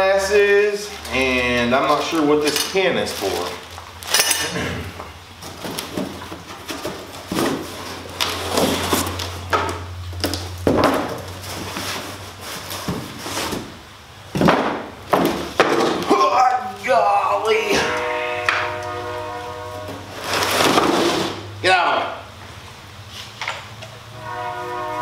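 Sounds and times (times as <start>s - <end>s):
boxes knocking: 5.4s - 9.8s, 12.7s - 16.2s
cardboard scraping and rustling: 5.4s - 16.1s, 19.7s - 21.5s.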